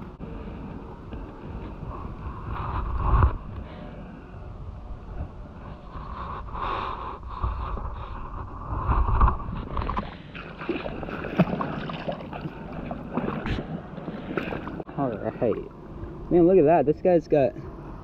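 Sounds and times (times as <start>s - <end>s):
wind rumbling on microphone: 0.0s - 16.3s
microphone handling noise: 1.2s - 3.7s, 5.8s - 10.1s
footsteps in shallow water: 8.9s - 15.4s
light water splashes: 9.6s - 15.7s.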